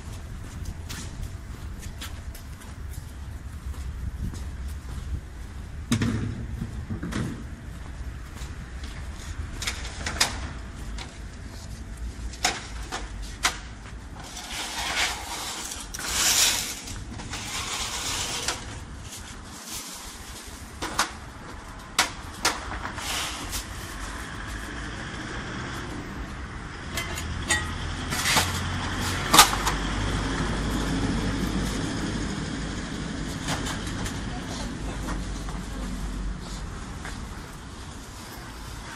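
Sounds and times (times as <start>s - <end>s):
street traffic noise: 0.0s - 38.9s
vehicle passing: 22.8s - 38.9s.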